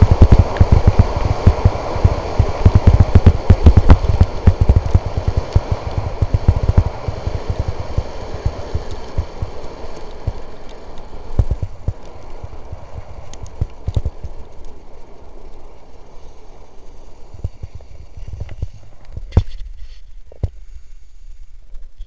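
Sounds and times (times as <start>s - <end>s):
deep knocks of skis on bumps: 0.0s - 10.3s
wind rushing on microphone: 0.0s - 20.5s
skis running over packed snow: 0.0s - 21.9s.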